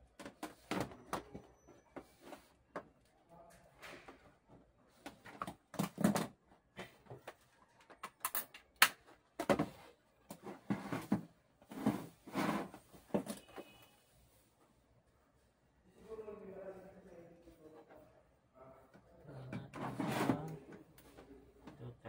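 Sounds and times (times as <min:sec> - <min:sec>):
objects knocking and scraping: 0:03.7 - 0:13.8, 0:19.4 - 0:21.8.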